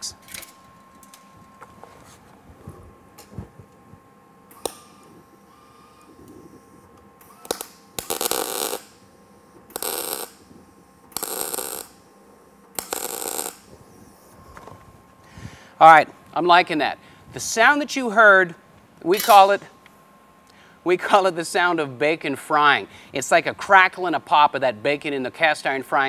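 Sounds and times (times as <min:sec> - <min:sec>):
welding arc crackle and pop: 0:04.5 - 0:05.4, 0:06.0 - 0:12.1, 0:12.7 - 0:13.9.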